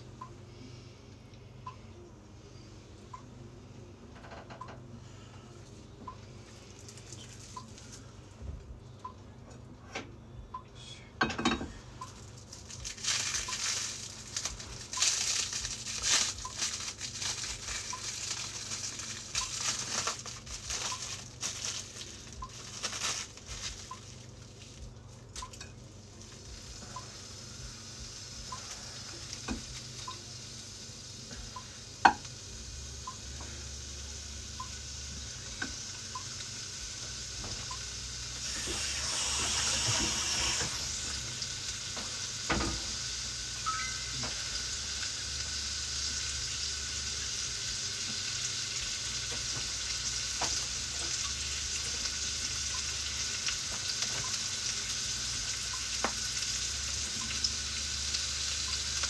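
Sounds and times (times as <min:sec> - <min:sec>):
frying pan sizzling: 0:12.0 - 0:59.0
plastic food wrap crinkling: 0:12.2 - 0:25.4.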